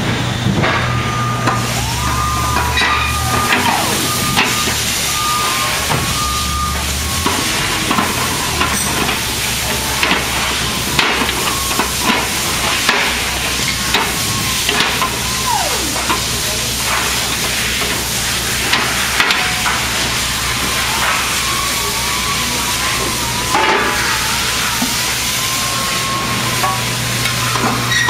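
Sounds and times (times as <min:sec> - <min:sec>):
workshop hiss and hum: 0:00.0 - 0:28.0
faint wavering tone: 0:14.2 - 0:16.4.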